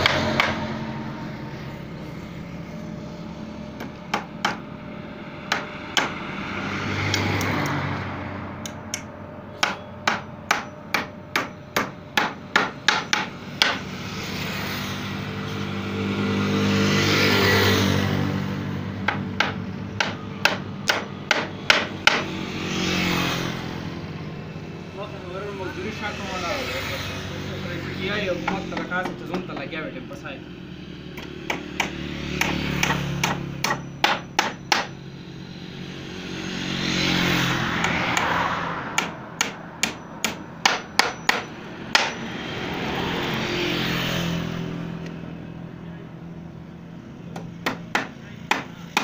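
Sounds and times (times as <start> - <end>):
engine hum: 0.0 - 49.0.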